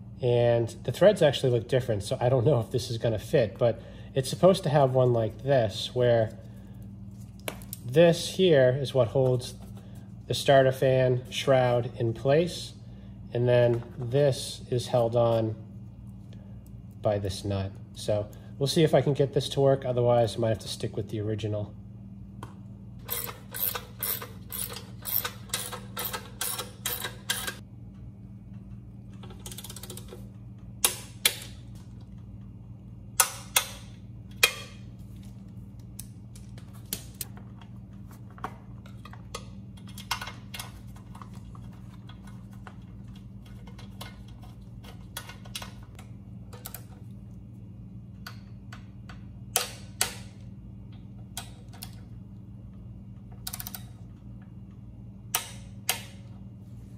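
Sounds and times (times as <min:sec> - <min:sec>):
low steady hum: 0:00.0 - 0:56.9
ratchet wrench clicking: 0:23.0 - 0:27.6.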